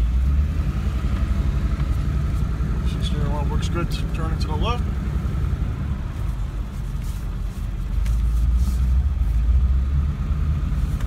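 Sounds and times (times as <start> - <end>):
diesel engine rumble: 0.0 - 11.0.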